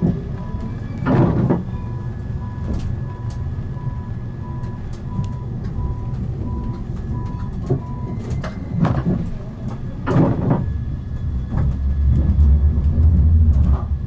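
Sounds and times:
tram rumbling: 0:00.0 - 0:14.0
short electronic warning beeps: 0:01.7 - 0:08.8.

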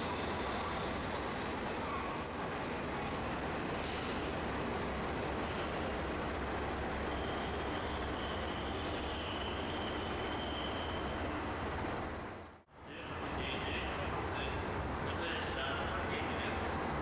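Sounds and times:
rail vehicle rumbling on track: 0:00.0 - 0:17.0
faint high wheel squeal: 0:07.1 - 0:12.0.

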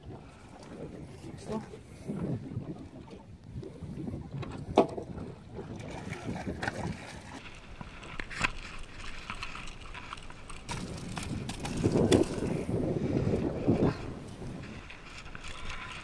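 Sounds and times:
water splashing against boat: 0:00.0 - 0:16.0
knocks against hull: 0:04.4 - 0:05.1.

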